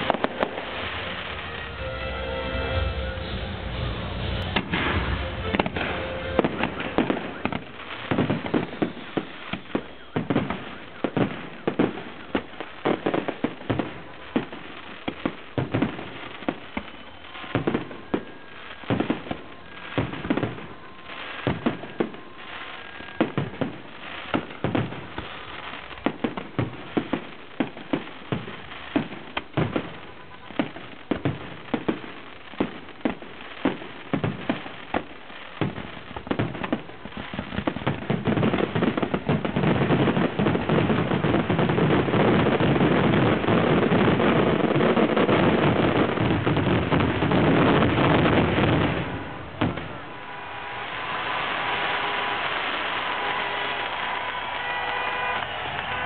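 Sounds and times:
fireworks bursting: 0.0 - 56.0.

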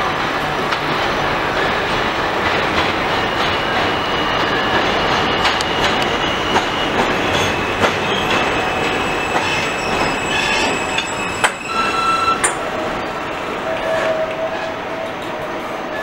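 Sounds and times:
subway train rumble: 0.0 - 16.0
high wheel squeal: 3.2 - 12.6.

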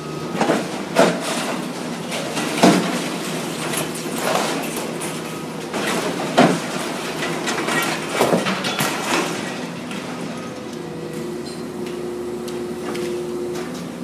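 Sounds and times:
excavator running: 0.0 - 14.0
debris crashing and scraping: 0.3 - 10.8.

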